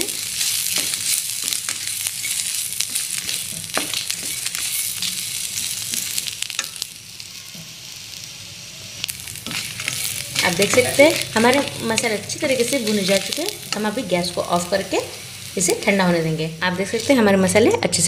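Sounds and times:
food sizzling in oil: 0:00.0 - 0:18.0.

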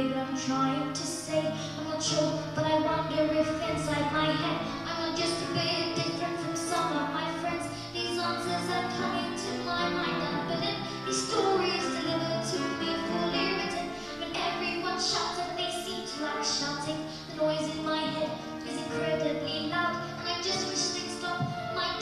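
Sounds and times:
piano accompaniment: 0:00.0 - 0:22.0.

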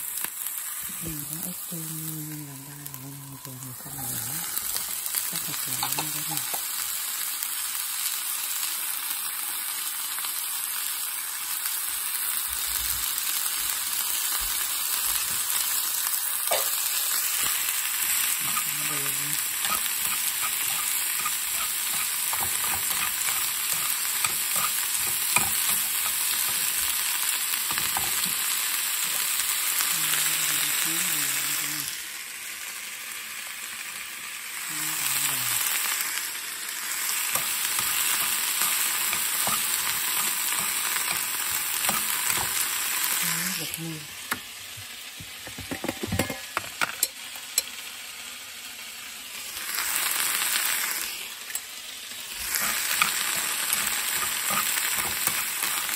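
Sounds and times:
vegetables sizzling in a pan: 0:00.0 - 0:55.9
chopsticks scraping a pan: 0:17.4 - 0:27.0, 0:27.7 - 0:28.5, 0:37.2 - 0:42.8, 0:52.4 - 0:55.9.

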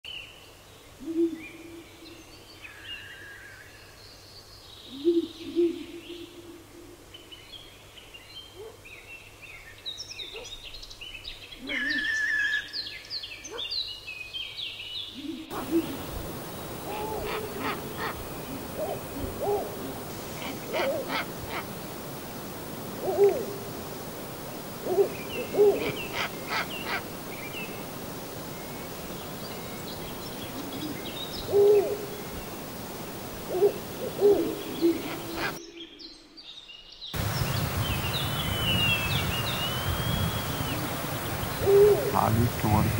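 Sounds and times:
faint steady hiss: 0:00.1 - 0:13.3, 0:14.1 - 0:42.9
owl hooting: 0:15.2 - 0:35.6, 0:39.4 - 0:42.9.

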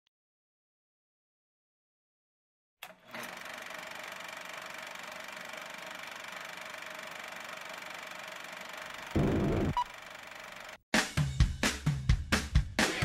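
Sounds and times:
film projector whirring and clattering: 0:02.8 - 0:10.8.

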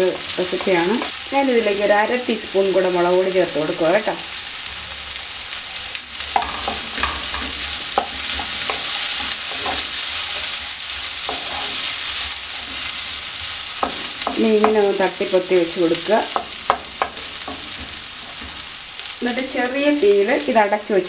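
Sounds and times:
food sizzling in hot oil: 0:00.0 - 0:21.0
wooden spatula scraping a pan: 0:06.4 - 0:14.9, 0:15.9 - 0:18.9.

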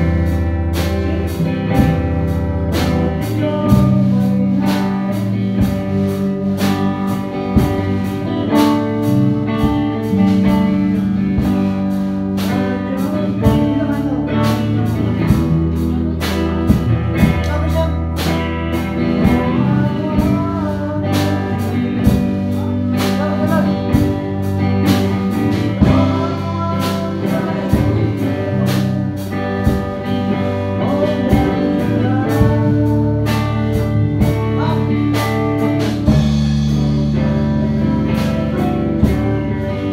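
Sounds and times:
drum kit beat: 0:00.0 - 0:39.9
electric guitar: 0:00.0 - 0:39.9
man singing into a microphone: 0:02.5 - 0:06.0, 0:12.4 - 0:35.9.

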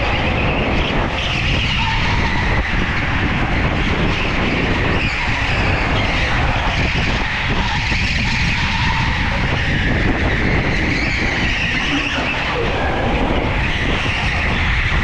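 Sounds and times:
go-kart motor running: 0:00.0 - 0:15.0.

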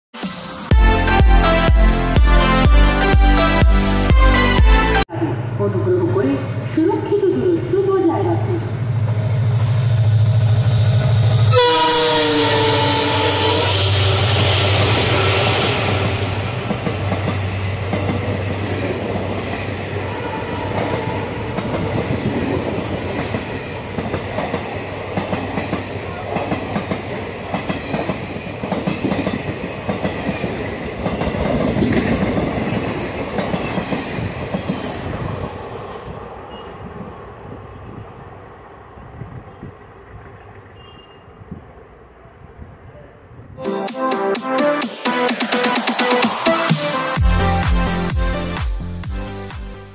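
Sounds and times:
diesel locomotive passing: 0:00.8 - 0:44.8
passenger coaches rattling by: 0:05.5 - 0:43.6.

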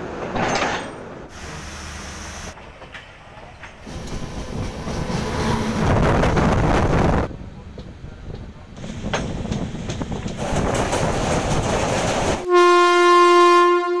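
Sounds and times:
train wheels clicking on rails: 0:02.6 - 0:12.5
rushing noise: 0:03.8 - 0:07.4.

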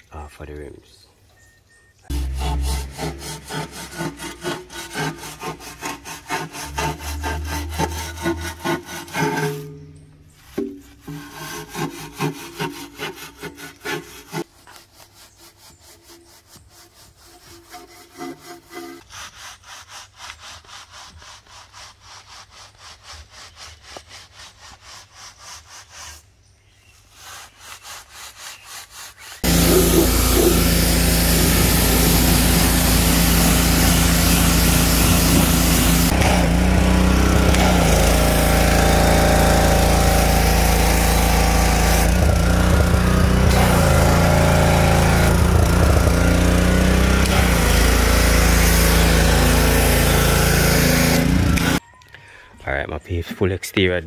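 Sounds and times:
brush scrubbing a wheel rim: 0:02.1 - 0:46.6, 0:47.3 - 0:51.8
pressure washer spraying: 0:29.4 - 0:51.8.

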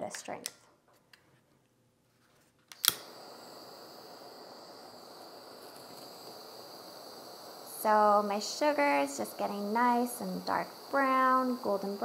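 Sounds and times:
kitchen torch igniter click: 0:02.7 - 0:12.0
torch flame hissing: 0:02.7 - 0:12.0.

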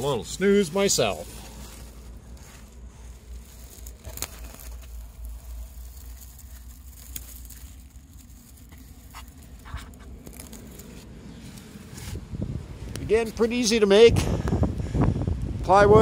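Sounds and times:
dry straw rustling and crackling: 0:00.0 - 0:13.9
wind rumble on microphone: 0:11.2 - 0:16.0.

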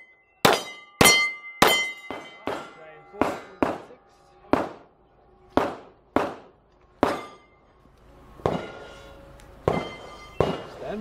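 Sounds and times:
gunshots with echo: 0:00.4 - 0:04.9, 0:05.6 - 0:07.3.

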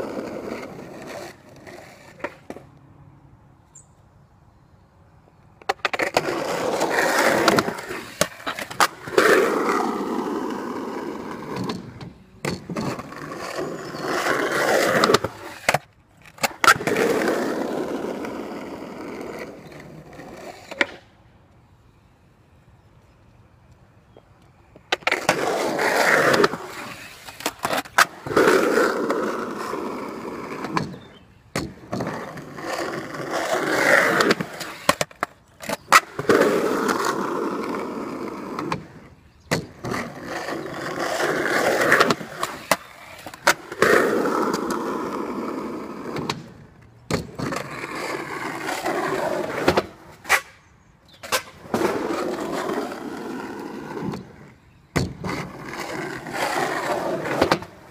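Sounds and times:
skateboard rolling over concrete: 0:00.0 - 0:02.7, 0:05.6 - 0:21.3, 0:23.8 - 0:57.9
skateboard clacking on concrete: 0:05.6 - 0:21.0, 0:24.2 - 0:57.9.

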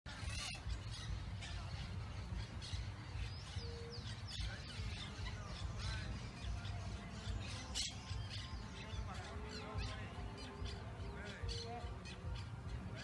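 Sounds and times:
birds chirping: 0:00.1 - 0:13.0.

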